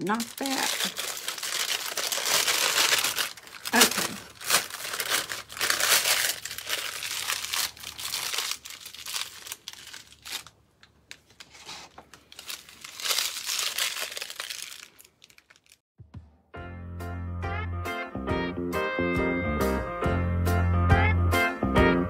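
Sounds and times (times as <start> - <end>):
faint plastic rustles: 0.0 - 15.8
plastic piping bag crinkling: 0.0 - 15.8.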